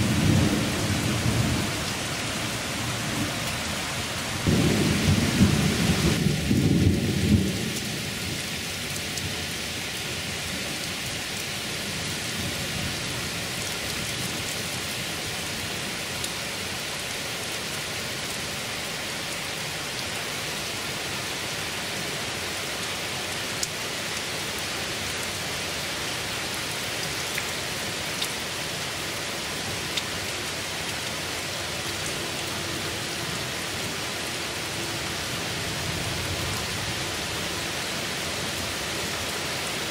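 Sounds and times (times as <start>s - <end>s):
thunder rumble: 0.0s - 8.1s
heavy rain on pavement and trees: 0.0s - 39.9s.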